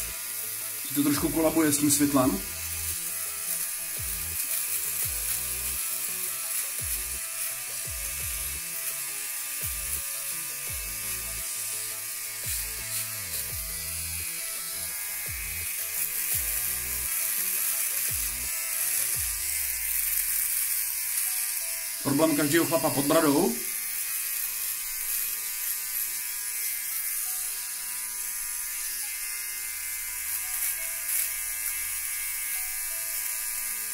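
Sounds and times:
electric trimmer buzzing: 0:00.0 - 0:33.9
music with deep pulsing bass: 0:07.9 - 0:08.6.

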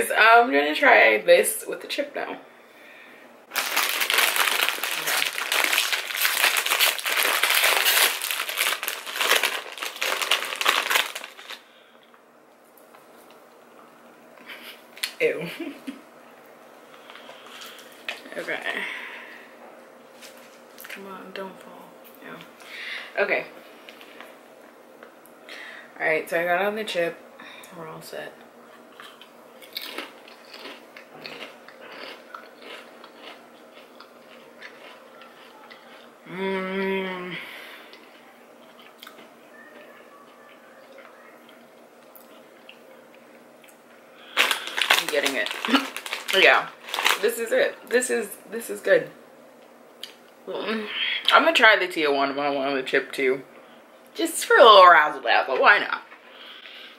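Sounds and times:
chip bag rustling: 0:03.5 - 0:11.7, 0:44.3 - 0:47.5.

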